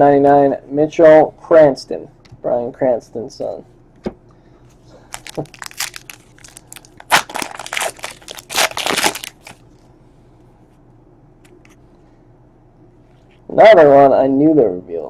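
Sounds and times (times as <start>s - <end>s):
wrapper crinkling and tearing: 5.0s - 9.6s.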